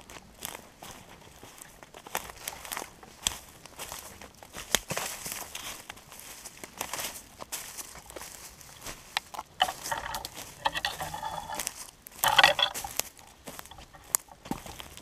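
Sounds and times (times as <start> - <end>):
footsteps crunching on needles and twigs: 0.0 - 9.4, 12.7 - 15.0.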